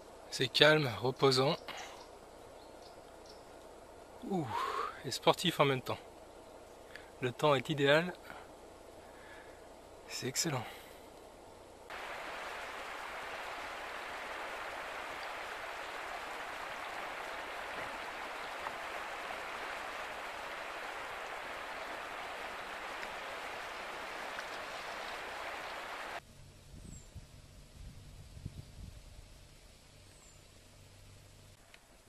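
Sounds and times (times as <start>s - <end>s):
river water rushing over rocks: 11.9s - 26.2s.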